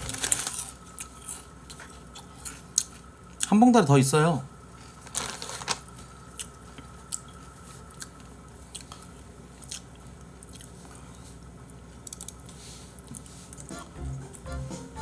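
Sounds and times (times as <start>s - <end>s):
person chewing crunchy snack: 0.0s - 3.1s, 5.1s - 14.4s.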